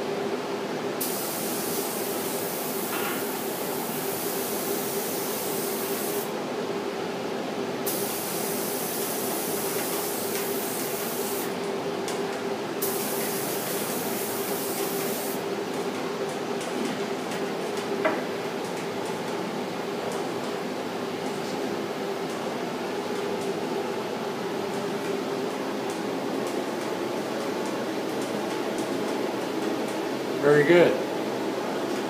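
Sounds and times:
spray gun spraying: 0:01.0 - 0:06.3, 0:07.8 - 0:11.5, 0:12.8 - 0:15.4.

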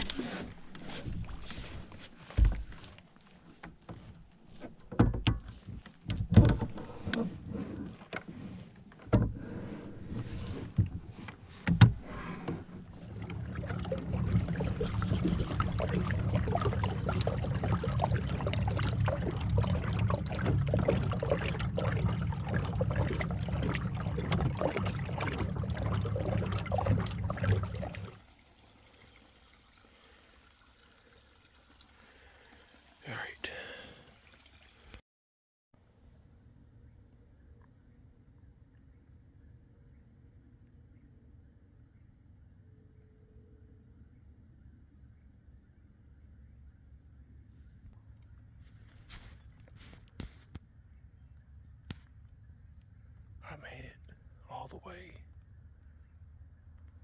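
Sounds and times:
small boat motor running: 0:12.6 - 0:28.2.

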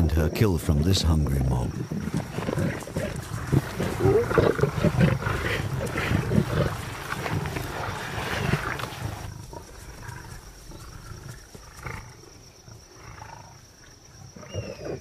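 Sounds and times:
lions growling: 0:01.7 - 0:13.6.

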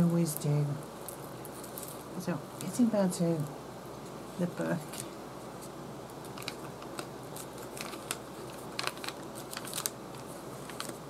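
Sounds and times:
paper pages rustling: 0:04.8 - 0:11.0.

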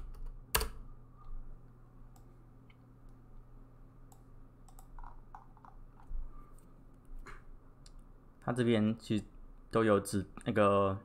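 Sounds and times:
low steady hum: 0:00.0 - 0:11.0
faint scattered clicks: 0:04.1 - 0:05.8.

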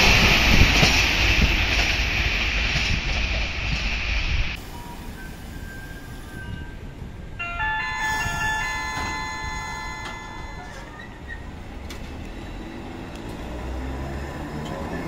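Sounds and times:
street and tram rumble: 0:00.0 - 0:15.0
bell-like chime: 0:07.4 - 0:11.0.

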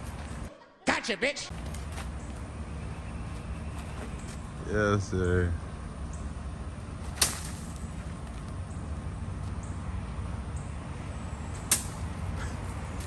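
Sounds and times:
wooden stick cracking: 0:07.1 - 0:08.5, 0:11.6 - 0:12.1.

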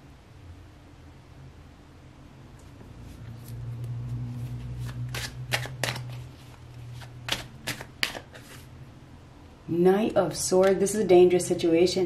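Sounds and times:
cards being shuffled: 0:03.0 - 0:08.7
sharp card snaps: 0:07.3 - 0:08.5.

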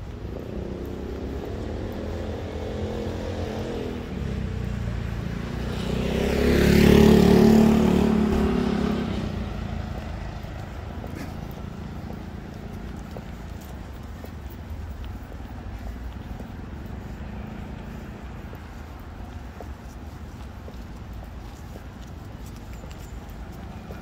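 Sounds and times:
vehicle driving past: 0:00.4 - 0:14.1.

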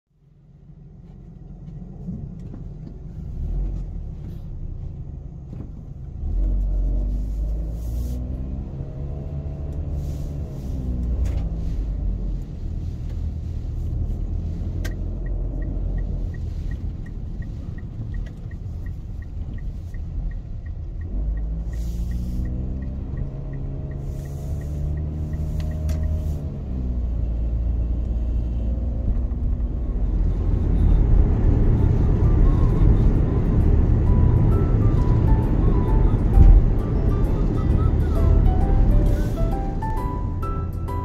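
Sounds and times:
light even ticking: 0:14.8 - 0:27.2
car passing: 0:29.6 - 0:41.0.

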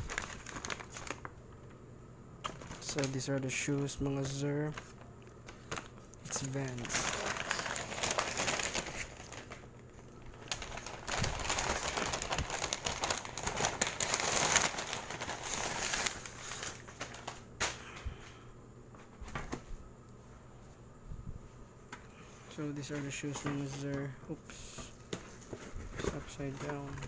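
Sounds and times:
paper bag rustling and crinkling: 0:00.0 - 0:01.8, 0:02.4 - 0:17.8, 0:22.6 - 0:27.0.

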